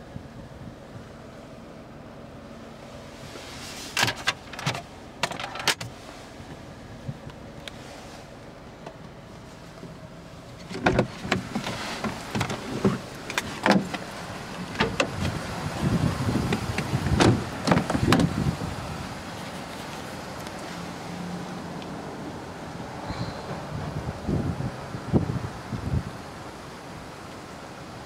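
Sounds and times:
low steady hum: 0:00.0 - 0:28.0
knocks and rustles in car cabin: 0:03.9 - 0:07.8, 0:10.6 - 0:18.6.

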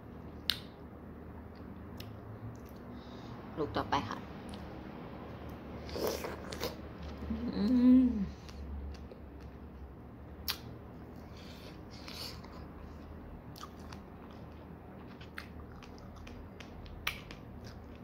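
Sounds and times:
person chewing: 0:05.4 - 0:07.3, 0:10.4 - 0:18.0.

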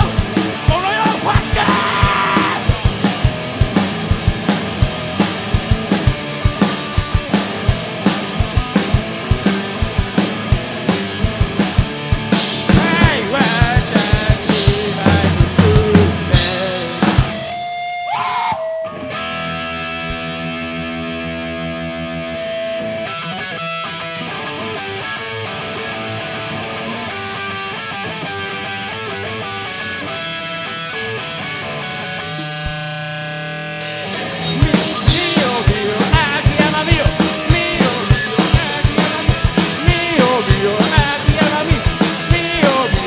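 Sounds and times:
pounding drum beat: 0:00.0 - 0:17.6, 0:33.7 - 0:43.0
rock band playing: 0:00.0 - 0:43.0.

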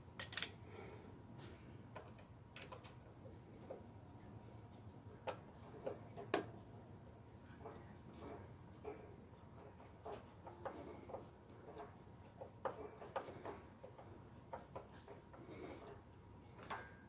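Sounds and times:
screwdriver clicks and taps on plate: 0:02.0 - 0:03.0.

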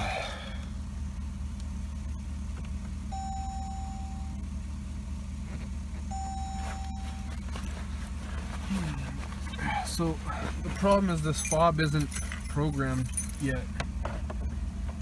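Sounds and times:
low steady drone: 0:00.0 - 0:04.8
car warning chime: 0:03.0 - 0:04.4, 0:06.1 - 0:07.5.

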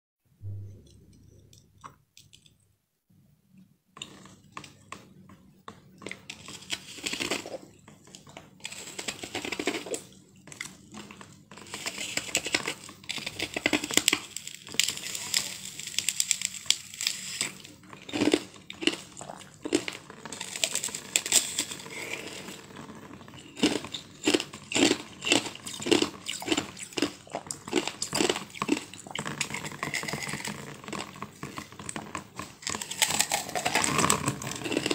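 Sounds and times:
ice block crunching: 0:32.6 - 0:34.9.

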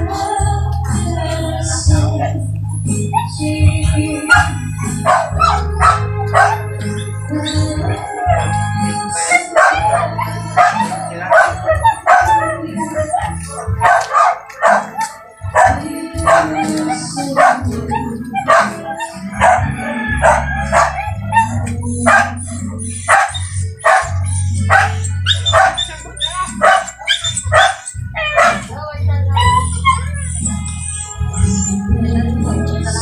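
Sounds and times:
music playing: 0:00.0 - 0:33.0
dog barking: 0:04.3 - 0:06.6, 0:09.2 - 0:28.7.

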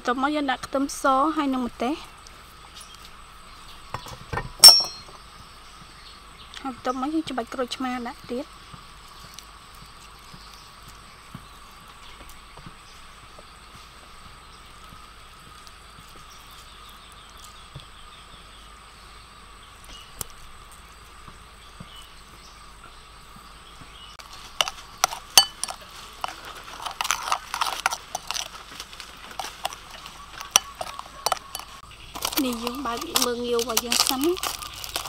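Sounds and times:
faint background hum: 0:00.0 - 0:35.0
metal spoon clinking in ceramic bowl: 0:04.6 - 0:05.0, 0:24.6 - 0:25.8, 0:30.4 - 0:31.8.

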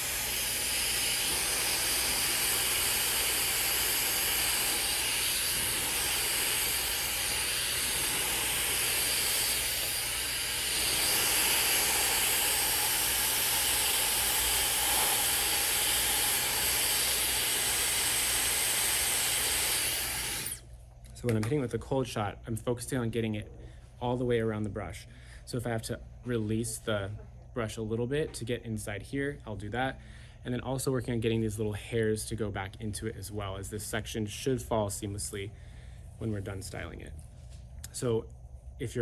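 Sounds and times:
hair dryer blowing air: 0:00.0 - 0:20.6.

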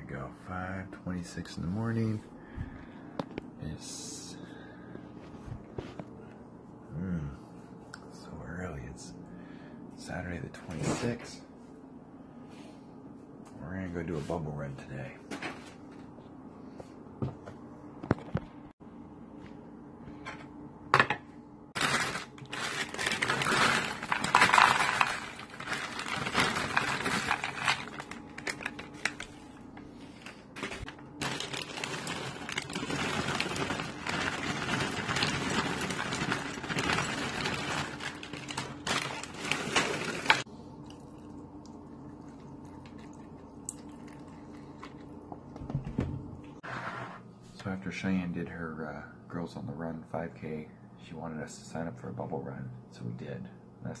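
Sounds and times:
cereal rattling into plastic bowl: 0:21.8 - 0:29.2, 0:30.6 - 0:40.4
plastic bag crinkling: 0:21.8 - 0:40.5.

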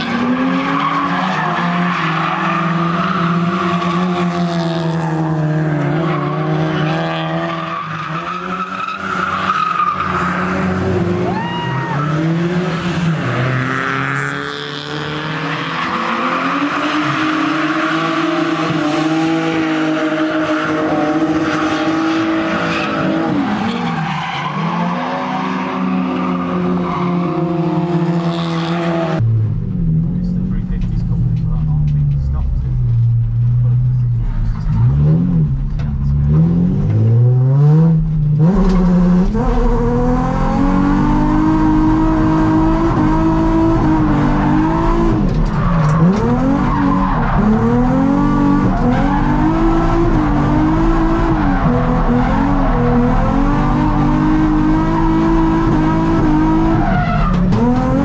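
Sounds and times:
car engine revving hard: 0:36.2 - 0:58.0.

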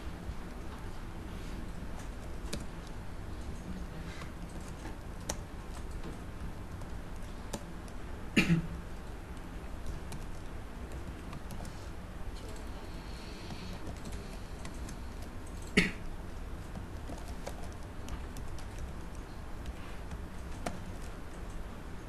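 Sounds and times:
low steady hum: 0:00.0 - 0:22.0
keyboard keystrokes: 0:02.0 - 0:08.0, 0:08.9 - 0:11.8, 0:16.6 - 0:21.6.

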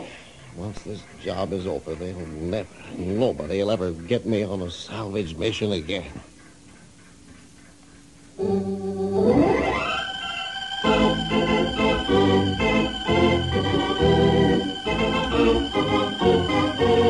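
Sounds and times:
organ chords: 0:08.4 - 0:17.0.

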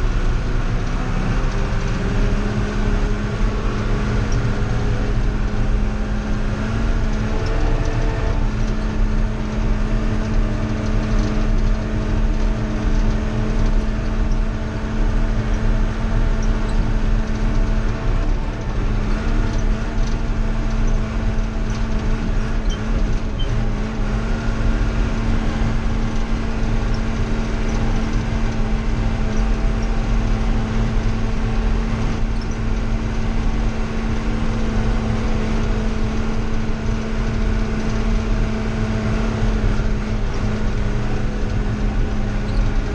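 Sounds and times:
tractor engine humming: 0:00.0 - 0:42.9.

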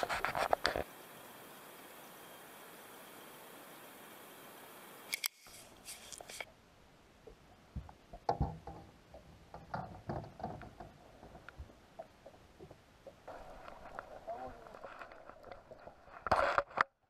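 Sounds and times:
steady hiss: 0:00.0 - 0:16.7
fishing rod and reel handled: 0:05.1 - 0:06.5, 0:13.5 - 0:16.9.

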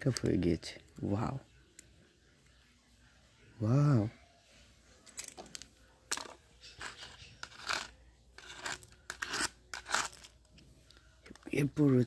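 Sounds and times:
objects scraping on concrete floor: 0:06.1 - 0:10.4.

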